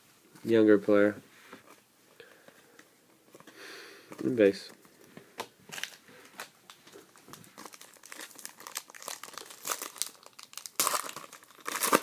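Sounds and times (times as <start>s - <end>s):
foil pack crinkling: 5.7s - 12.0s
foil pack ripping: 7.6s - 12.0s.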